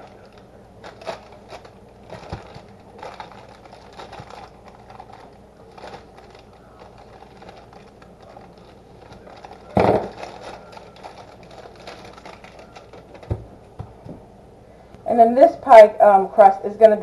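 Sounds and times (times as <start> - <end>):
plastic wrapping crinkling: 0.0 - 13.5.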